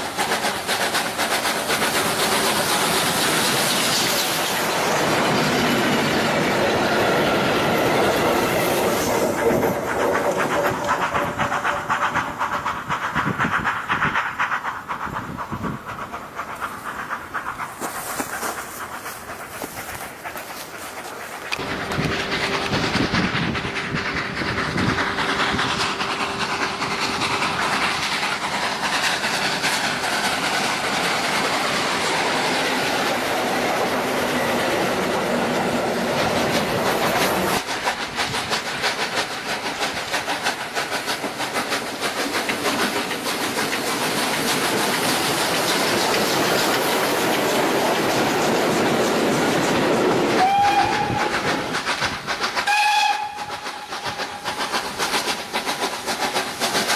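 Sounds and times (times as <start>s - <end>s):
train wheels clacking on rails: 0.0s - 56.9s
steam whistle: 50.4s - 51.4s, 52.6s - 54.1s.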